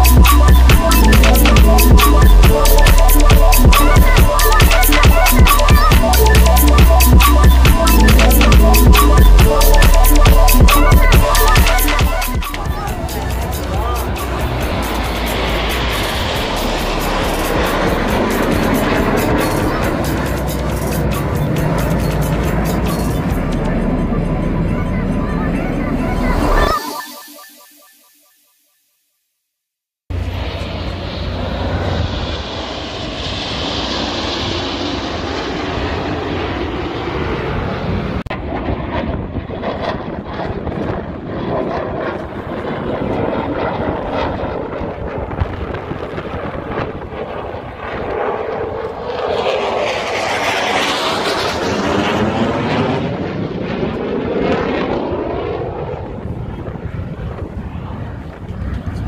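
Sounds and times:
jet aircraft roar: 0.0s - 27.6s, 30.1s - 59.0s
wind buffeting microphone: 38.4s - 49.0s, 55.6s - 59.0s.

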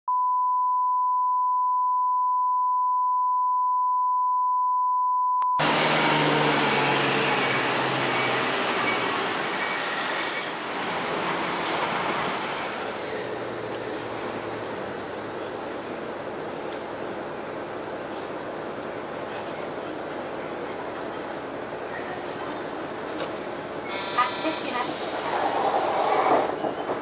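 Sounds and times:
bus diesel engine running: 5.6s - 26.7s.

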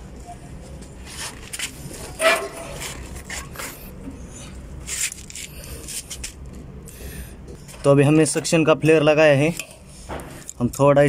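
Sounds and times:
hands rustling and scraping pipe: 0.8s - 6.6s.

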